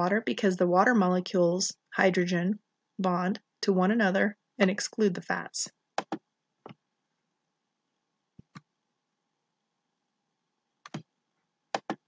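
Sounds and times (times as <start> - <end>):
computer mouse clicking: 6.0 - 6.8, 10.8 - 11.1, 11.7 - 12.0.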